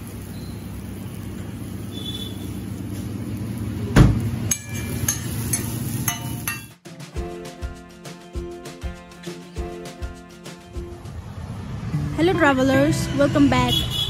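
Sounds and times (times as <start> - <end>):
traffic rumble: 0.0 - 5.9, 10.9 - 14.0
music: 6.1 - 13.9.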